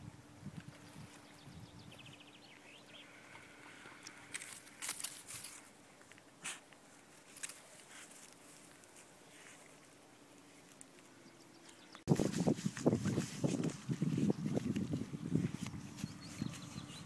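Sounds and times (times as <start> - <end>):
dry grass and reeds crackling: 0.4 - 17.0
footsteps in dry grass: 3.4 - 5.8, 12.0 - 17.0.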